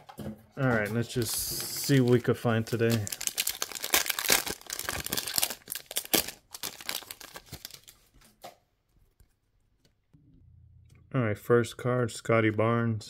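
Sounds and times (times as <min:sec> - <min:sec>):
foil wrapper tearing and crinkling: 0:01.0 - 0:08.2.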